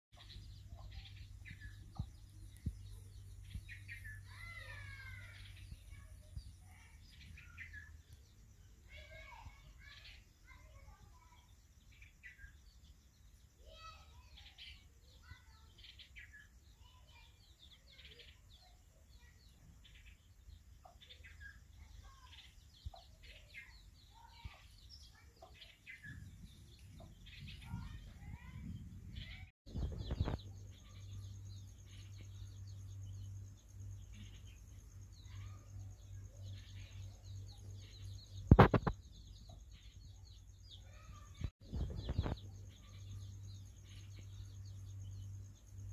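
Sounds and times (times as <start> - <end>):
chicks peeping: 20.3 - 32.5, 35.1 - 45.2.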